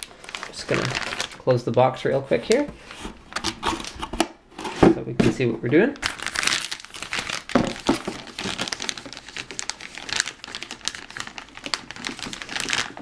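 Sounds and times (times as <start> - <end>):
plastic bag crinkling: 0.0 - 2.7, 5.7 - 13.0.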